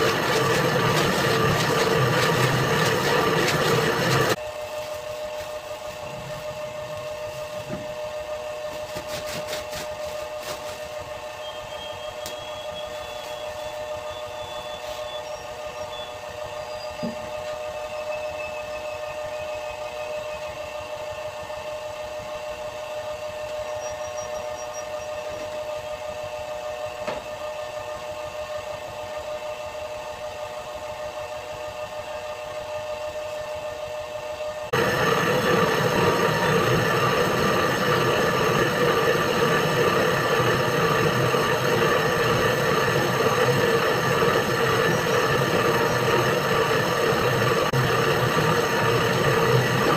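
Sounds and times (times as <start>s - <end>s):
dough mixer motor hum: 0.0s - 4.4s, 15.3s - 49.9s.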